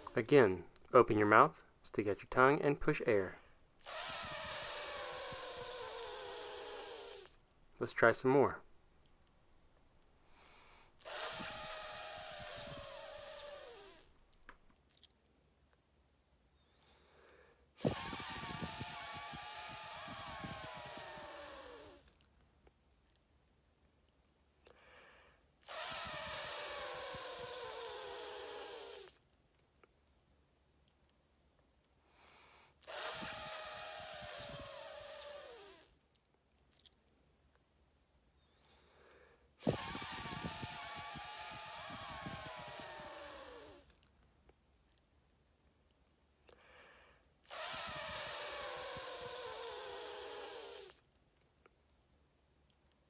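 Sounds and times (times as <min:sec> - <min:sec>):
voiceless th hiss: 0:00.0 - 0:02.2, 0:03.0 - 0:08.6, 0:10.0 - 0:14.2, 0:16.6 - 0:22.2, 0:24.7 - 0:29.2, 0:32.0 - 0:36.0.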